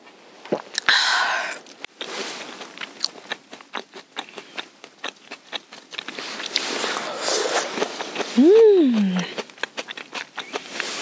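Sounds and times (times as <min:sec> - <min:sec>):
person chewing crunchy food: 0:00.5 - 0:11.0
soft rustle: 0:02.0 - 0:02.8, 0:06.0 - 0:08.4.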